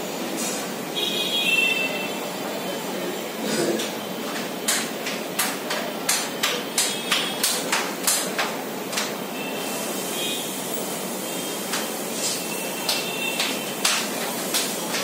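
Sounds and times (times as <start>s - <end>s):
rain hissing: 9.6s - 15.0s.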